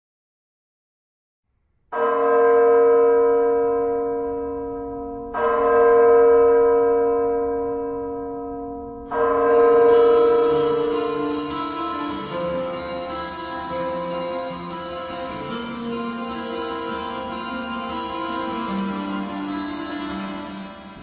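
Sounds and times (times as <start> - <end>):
deep bell strikes ringing: 2.0 - 21.0
higher bell notes: 7.8 - 21.0.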